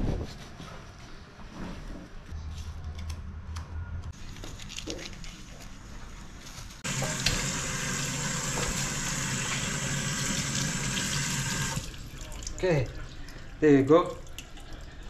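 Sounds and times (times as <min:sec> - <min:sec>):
water running from tap: 0:06.8 - 0:15.0.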